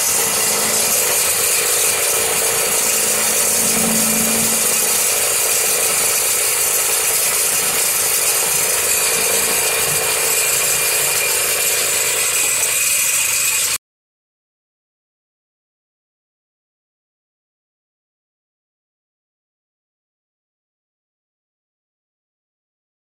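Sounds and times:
snowmobile engine running: 0:00.0 - 0:13.7.

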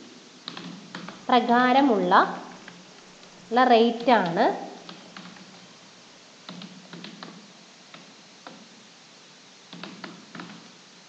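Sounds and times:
keyboard keystrokes: 0:00.4 - 0:01.2, 0:06.5 - 0:08.6, 0:09.7 - 0:10.6.

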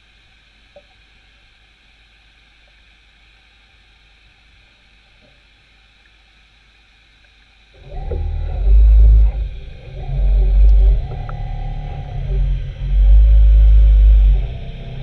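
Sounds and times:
faint underwater hiss: 0:00.0 - 0:12.0
small tick: 0:00.7 - 0:01.0, 0:06.0 - 0:06.2, 0:07.2 - 0:08.6, 0:10.3 - 0:12.1.

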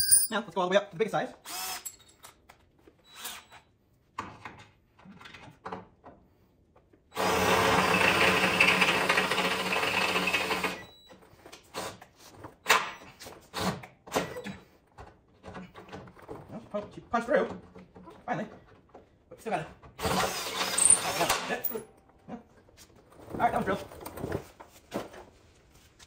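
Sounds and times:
cordless drill boring through steel: 0:01.4 - 0:02.0, 0:07.2 - 0:10.9, 0:20.0 - 0:21.7.

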